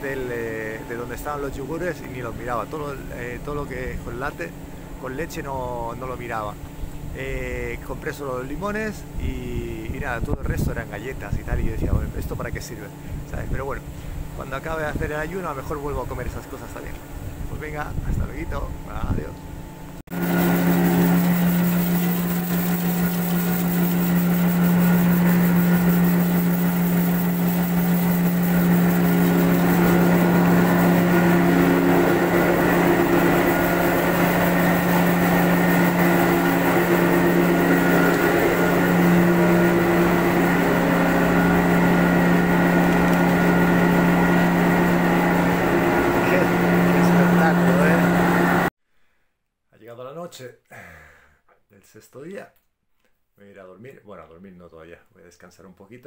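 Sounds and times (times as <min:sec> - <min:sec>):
milling machinery motor hum: 0:00.0 - 0:09.3, 0:20.1 - 0:48.7.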